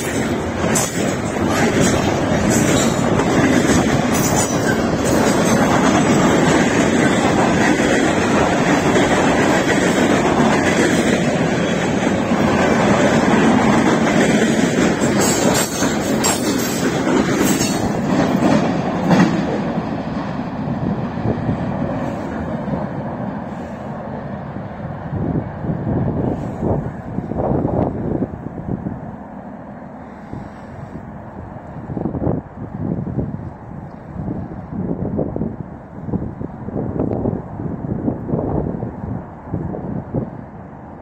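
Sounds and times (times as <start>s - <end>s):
wheels clicking over rail joints: 0.0s - 20.5s
steel wheels rumbling on rail: 0.0s - 41.0s.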